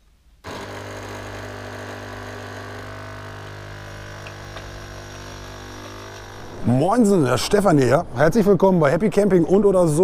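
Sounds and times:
coffee machine pump humming: 0.4 - 6.6.

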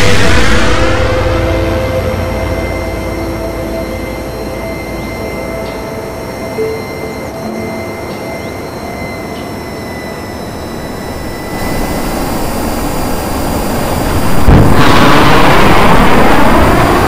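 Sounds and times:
jet engine roar: 0.0 - 17.0
rocket plane rushing by: 11.5 - 17.0.

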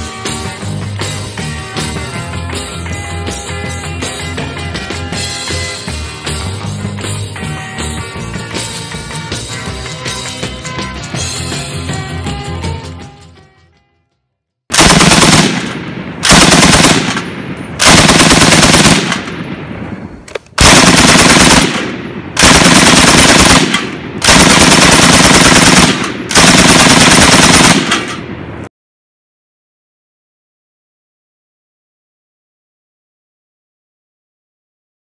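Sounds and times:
machine gun automatic fire: 14.7 - 19.5, 20.6 - 28.3.

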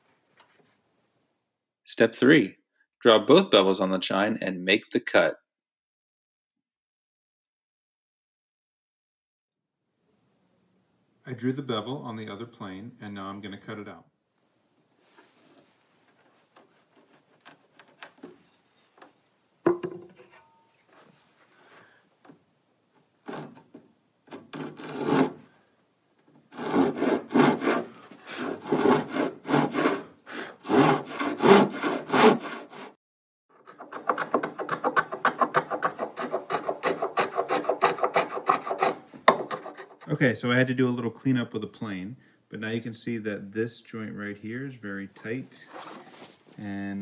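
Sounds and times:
light taps and scrapes: 0.3 - 0.8, 15.1 - 19.4
handsaw sawing wood: 23.2 - 23.7, 24.3 - 25.4, 26.5 - 33.0, 33.6 - 40.1.

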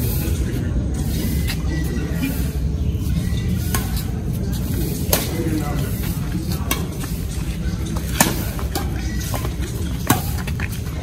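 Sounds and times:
rackets striking shuttlecock: 3.7 - 5.6, 6.4 - 10.8.

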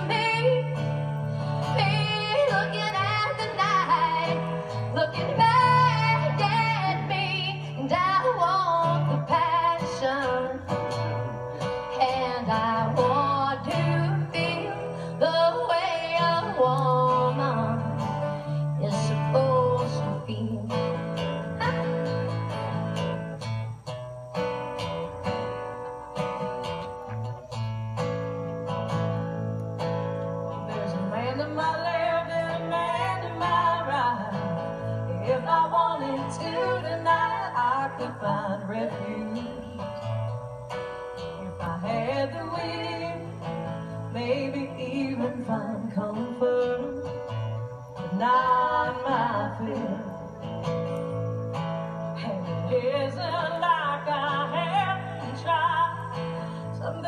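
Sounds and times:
women singing: 0.0 - 1.0, 1.6 - 22.3, 30.7 - 39.9, 41.4 - 47.2, 48.0 - 50.2, 52.2 - 57.0
acoustic guitar: 0.0 - 57.0.

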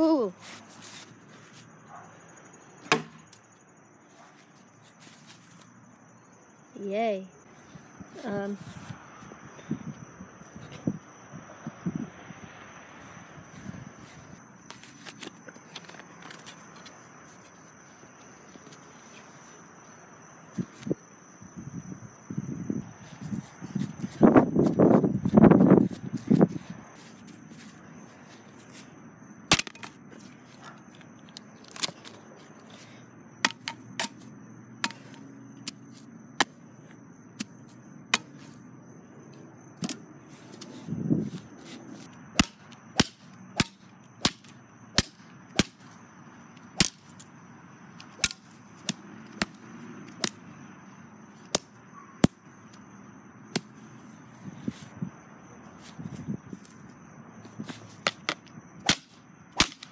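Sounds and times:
sharp cracks: 29.5 - 30.0, 42.4 - 46.0, 46.8 - 47.3, 48.1 - 49.6, 58.0 - 59.9.

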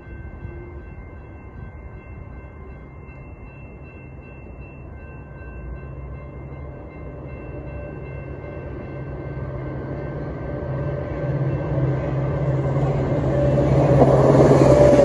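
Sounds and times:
train approaching with rumble: 0.0 - 15.0
wheel-on-rail noise: 7.5 - 15.0.

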